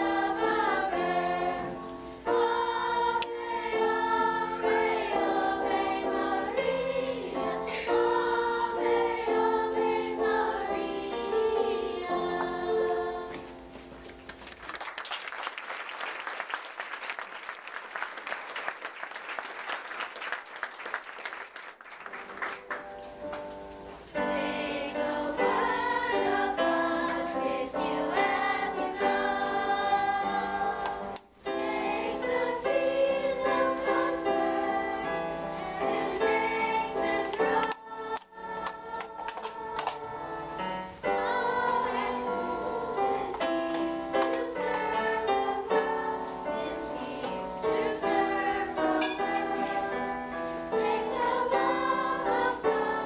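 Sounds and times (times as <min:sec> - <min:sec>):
children's choir singing: 0:00.0 - 0:13.7, 0:24.1 - 0:53.0
keyboard accompaniment: 0:00.0 - 0:14.4, 0:22.2 - 0:53.0
applause: 0:14.2 - 0:23.5.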